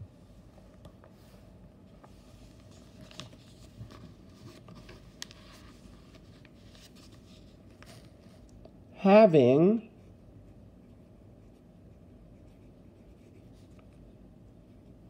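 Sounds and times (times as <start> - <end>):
paper workbook rustling: 2.0 - 8.5.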